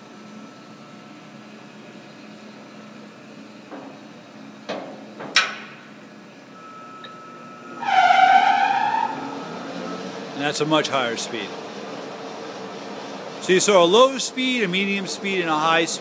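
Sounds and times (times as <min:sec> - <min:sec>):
steady machine hum: 0:00.0 - 0:07.9, 0:08.9 - 0:16.0
lathe drive whine: 0:08.6 - 0:16.0.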